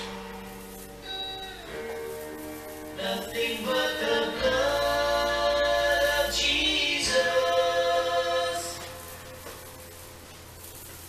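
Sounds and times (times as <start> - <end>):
voices singing a hymn: 3.0 - 9.4.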